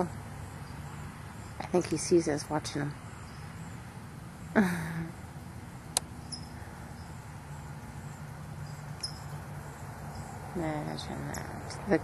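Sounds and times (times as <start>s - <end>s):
low background hum: 0.0s - 12.0s
sharp click: 5.9s - 6.1s
faint high chirps: 6.2s - 7.2s, 8.1s - 10.4s.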